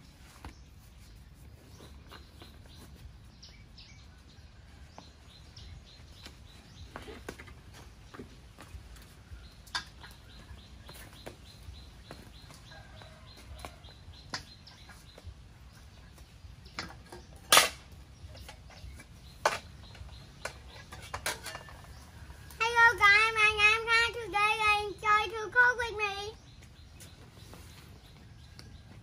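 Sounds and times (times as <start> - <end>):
bird chirping: 0.0 - 29.0
child's voice: 22.6 - 26.4.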